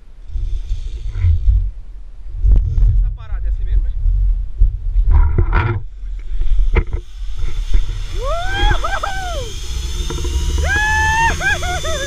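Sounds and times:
wind rushing across microphone: 0.0 - 9.5
man yelling: 8.2 - 9.5.

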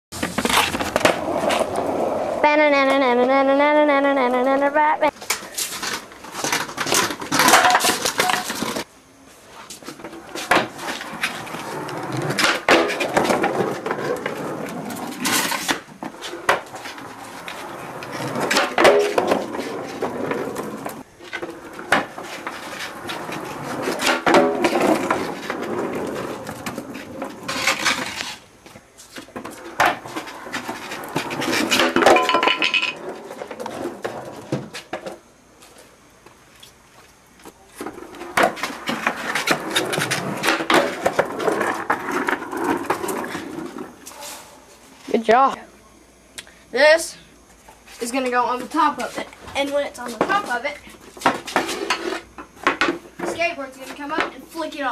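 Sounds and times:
skateboard wheels rolling on concrete: 0.1 - 45.7, 47.0 - 54.9
skateboard clacks and knocks: 5.9 - 8.8, 10.0 - 28.2, 29.3 - 35.2, 37.8 - 43.9.

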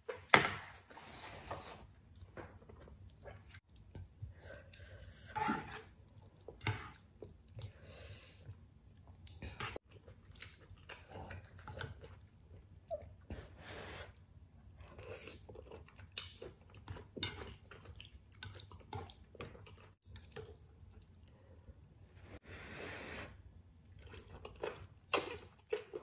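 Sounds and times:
wet chewing and mouth smacks: 8.5 - 12.7.

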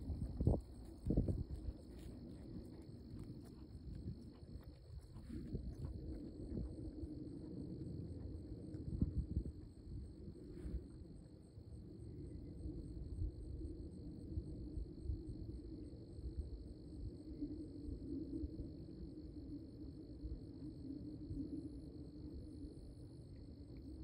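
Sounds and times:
low rumble: 0.0 - 17.2.

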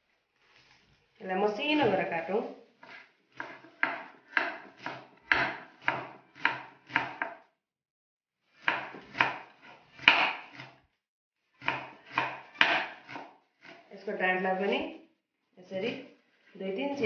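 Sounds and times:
knife chopping on wooden board: 2.9 - 7.4, 8.6 - 10.8, 11.6 - 13.8.

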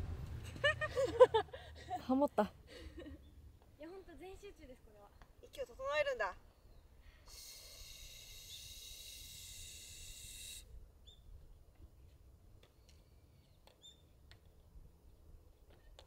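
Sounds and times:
steady high hiss: 7.0 - 10.9.

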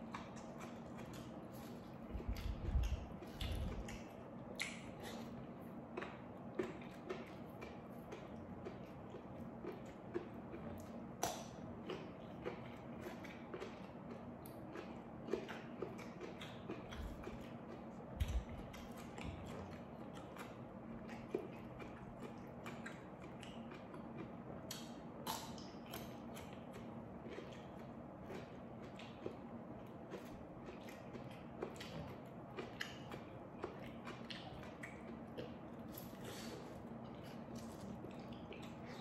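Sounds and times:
wet chewing and crunching: 0.0 - 39.0.

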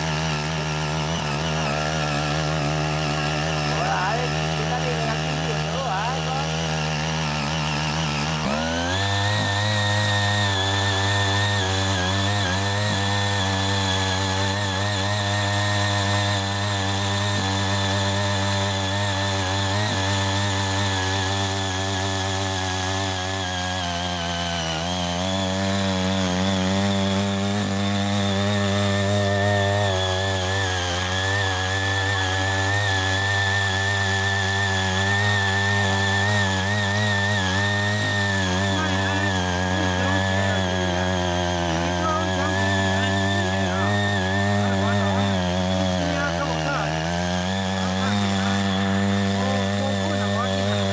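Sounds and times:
small tiller engine running: 0.0 - 50.9
tines churning soil: 0.0 - 50.9.

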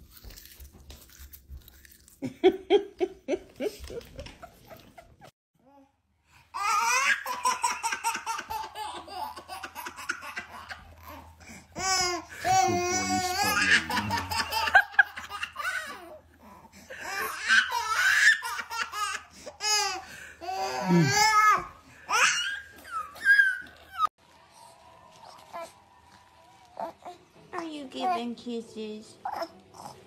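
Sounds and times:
baby laughing: 6.6 - 24.1.

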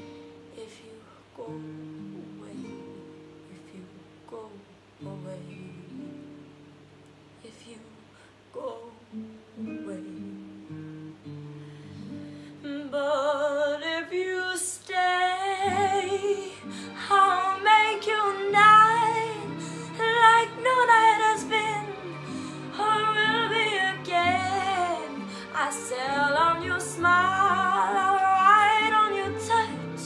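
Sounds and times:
girl singing a slow ballad: 0.0 - 6.3, 7.4 - 10.6, 11.8 - 30.0
soft instrumental accompaniment: 8.8 - 30.0.

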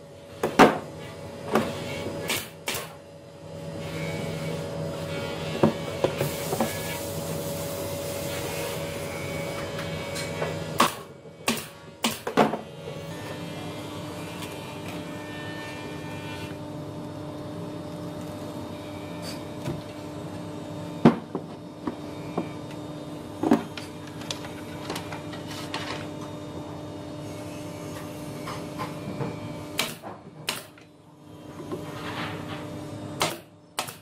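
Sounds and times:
nail gun shots: 2.3 - 3.0, 10.8 - 12.4, 29.8 - 30.8, 33.2 - 34.0.

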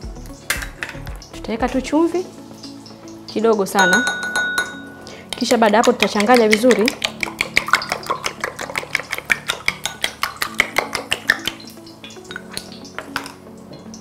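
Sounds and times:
soft background music: 0.0 - 14.0
eggs beaten in ceramic bowl: 5.3 - 11.6.

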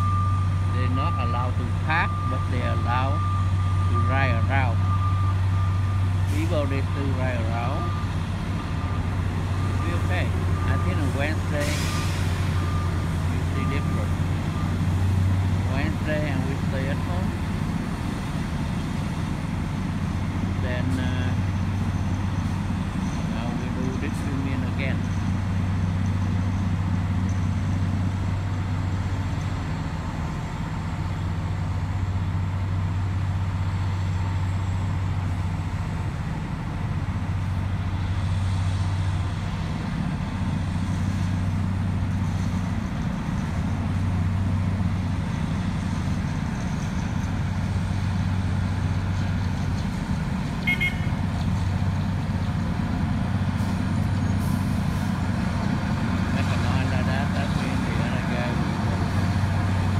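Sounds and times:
diesel engines droning: 0.0 - 59.9.

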